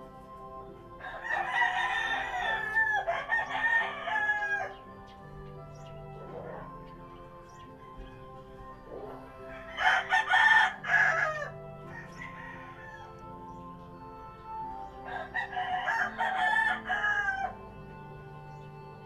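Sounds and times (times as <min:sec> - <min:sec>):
faint background music: 0:00.0 - 0:19.0
rooster crowing: 0:01.0 - 0:04.9, 0:08.9 - 0:13.4, 0:15.0 - 0:17.6.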